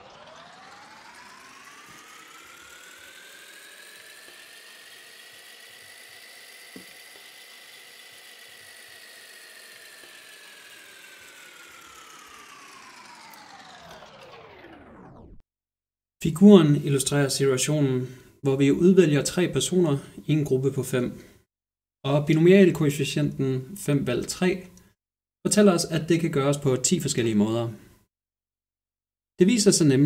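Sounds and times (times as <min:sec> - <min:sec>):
synthetic whirring rising and falling: 0:00.0 - 0:15.4.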